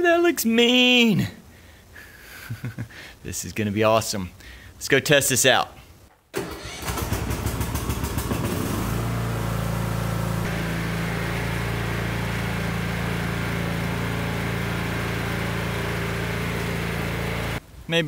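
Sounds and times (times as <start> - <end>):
lawn mower engine starting: 6.3 - 17.6.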